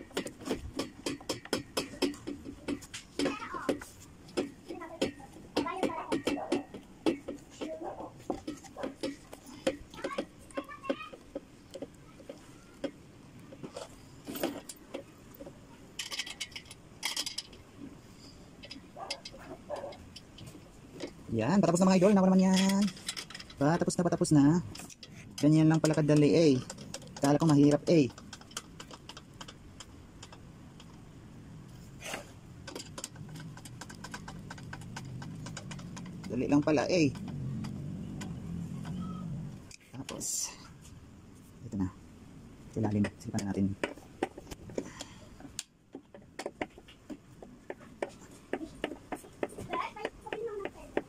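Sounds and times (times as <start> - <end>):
knocks and taps on furniture parts: 0.0 - 15.6, 42.8 - 51.0.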